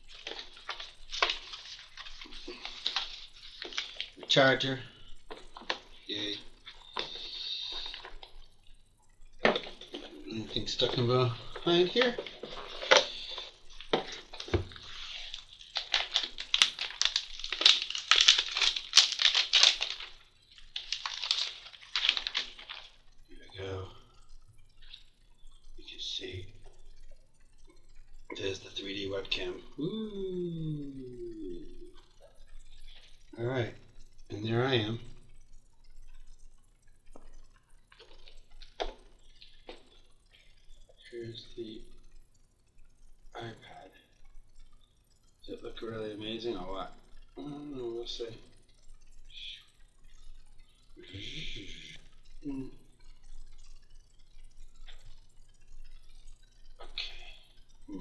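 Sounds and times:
packaging rustling and crinkling: 0:00.0 - 0:04.3, 0:11.5 - 0:23.0.

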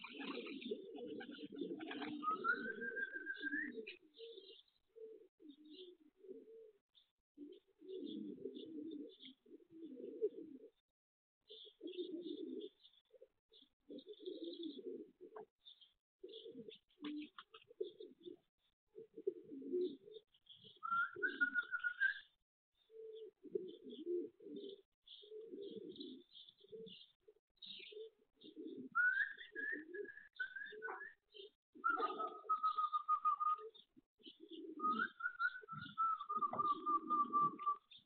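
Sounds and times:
pigeons cooing: 0:00.0 - 0:10.8, 0:11.5 - 0:38.0
small birds chirping: 0:00.0 - 0:10.8, 0:11.4 - 0:38.0
steady whistled tone: 0:02.2 - 0:03.8, 0:29.0 - 0:31.2, 0:34.9 - 0:37.8.

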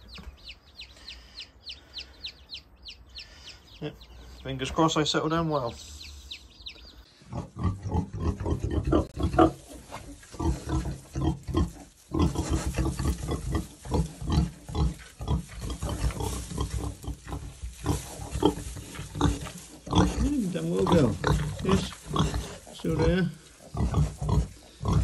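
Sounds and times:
pigs grunting: 0:07.2 - 0:25.0.

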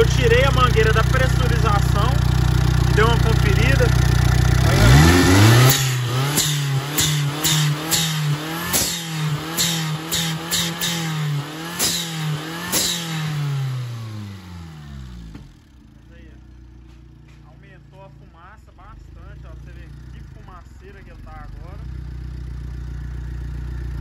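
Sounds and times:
sharp engine ticks: 0:00.0 - 0:13.5
car engine revving: 0:00.0 - 0:24.0.

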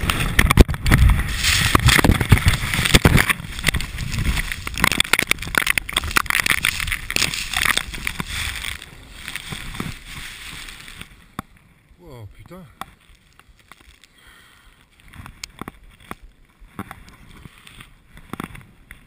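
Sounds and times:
snow scraping over camera: 0:00.0 - 0:11.3.

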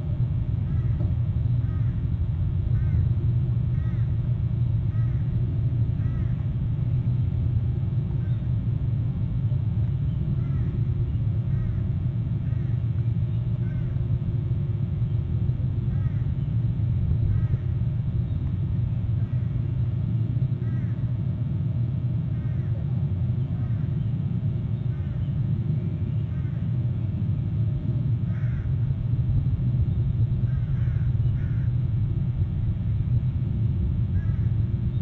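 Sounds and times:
wind rumble on microphone: 0:00.0 - 0:35.0
eagle calls: 0:28.3 - 0:28.8, 0:30.4 - 0:31.8, 0:34.1 - 0:34.6.

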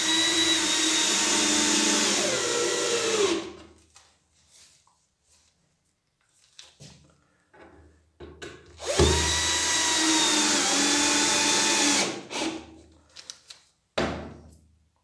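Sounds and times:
cordless drill driving screw: 0:00.0 - 0:03.5, 0:08.8 - 0:12.6.

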